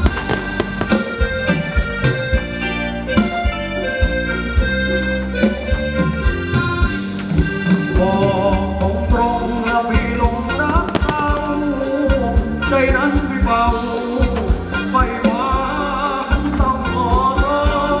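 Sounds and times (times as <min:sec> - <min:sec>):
steady drum beat: 0:00.0 - 0:04.8, 0:05.4 - 0:15.9
reedy accordion-like melody: 0:00.0 - 0:08.5.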